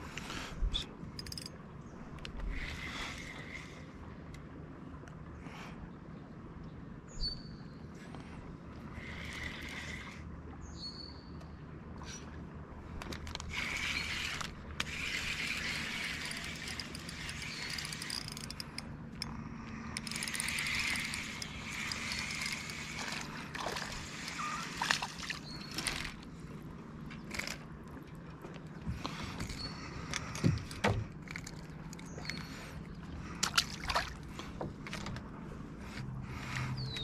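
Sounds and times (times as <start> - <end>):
water sloshing and trickling: 19.7 - 37.0.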